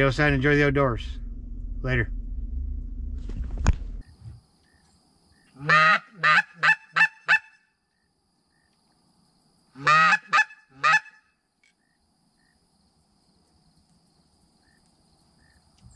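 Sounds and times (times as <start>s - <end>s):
goose call honks: 5.6s - 7.6s, 9.8s - 11.3s.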